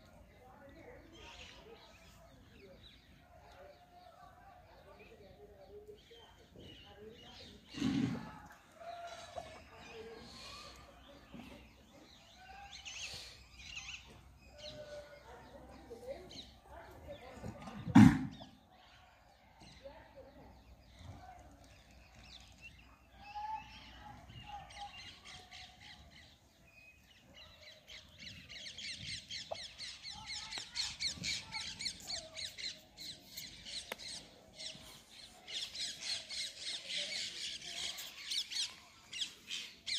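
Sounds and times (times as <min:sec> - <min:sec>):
small birds chirping: 0:18.3 - 0:39.9.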